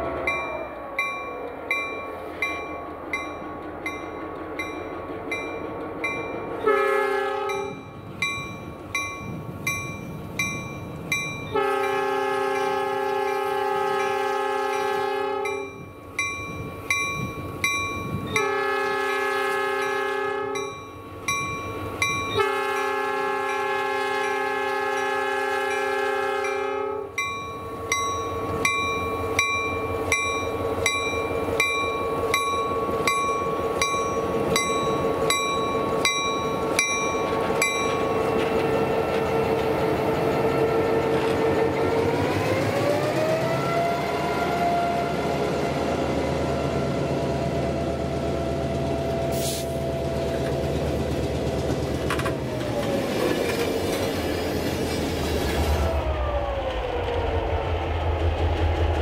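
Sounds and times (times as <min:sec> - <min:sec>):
locomotive bell ringing: 0:00.0 - 0:42.3
locomotive horn blasts: 0:06.6 - 0:07.8, 0:11.5 - 0:15.8, 0:18.4 - 0:20.8, 0:22.3 - 0:27.2.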